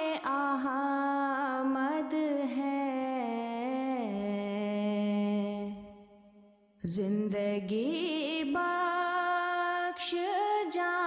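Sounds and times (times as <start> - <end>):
person singing devotional song: 0.0 - 6.2, 6.8 - 11.0.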